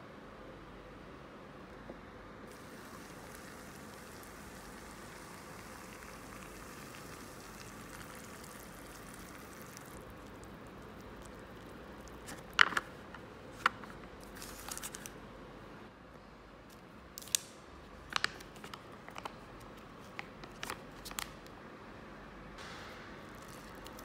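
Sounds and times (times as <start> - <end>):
hot water pouring into a cup: 2.5 - 12.2.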